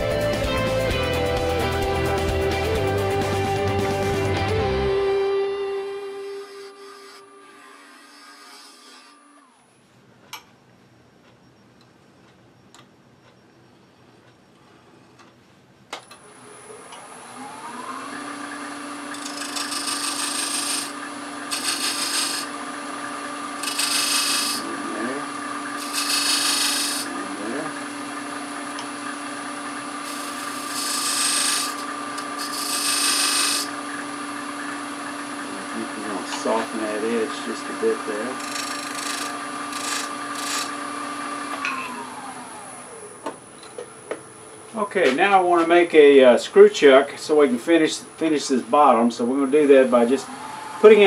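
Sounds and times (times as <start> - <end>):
lathe motor hum: 3.8 - 9.7, 16.2 - 43.4, 47.4 - 51.0
turning tool scraping wood: 6.2 - 9.6, 18.1 - 28.1, 28.8 - 41.6.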